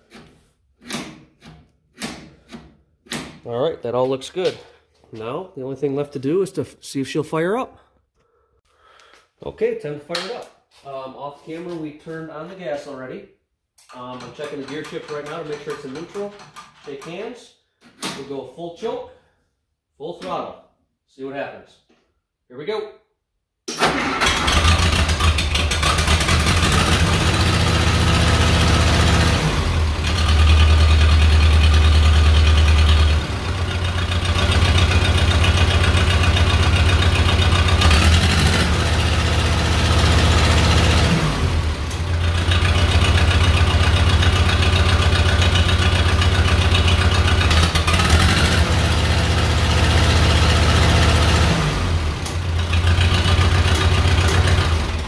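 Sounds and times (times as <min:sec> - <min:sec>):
tractor engine starting and running: 0:13.8 - 0:17.1, 0:23.7 - 0:55.0.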